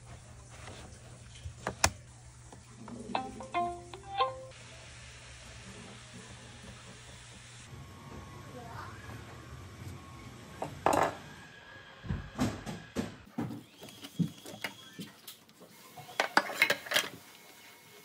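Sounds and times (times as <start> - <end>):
dishes clinking in a sink: 16.0 - 17.2.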